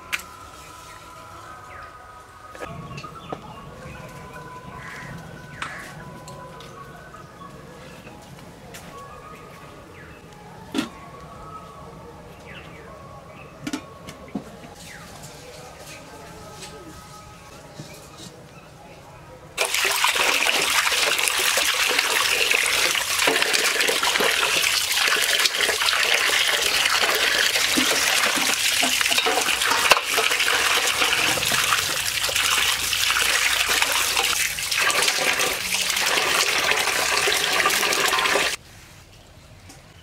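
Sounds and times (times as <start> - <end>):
water splashing onto fish in bowl: 19.6 - 38.6.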